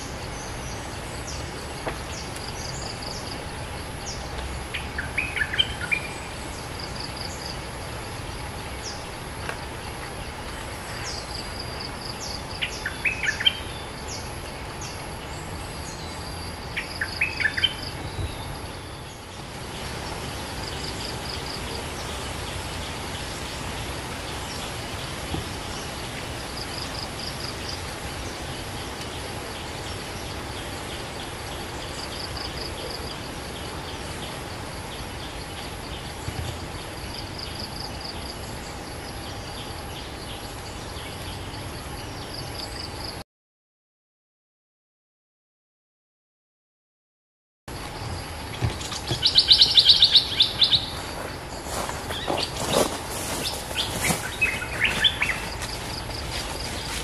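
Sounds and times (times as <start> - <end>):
high insect hum: 0.0 - 43.2, 47.7 - 57.0
bulbul chirpy calls: 48.7 - 51.0.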